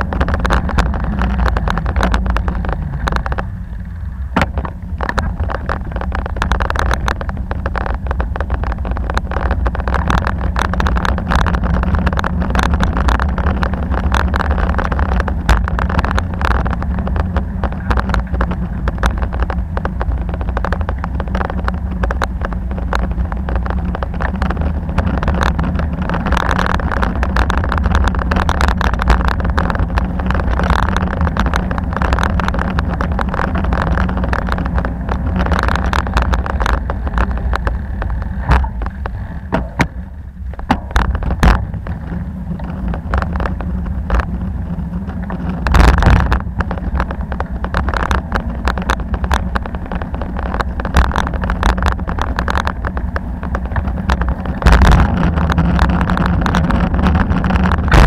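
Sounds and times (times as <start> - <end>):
bicycle clicks and rattles: 0.0 - 58.0
bicycle tyres on road: 0.0 - 58.0
wind on microphone: 0.0 - 58.0.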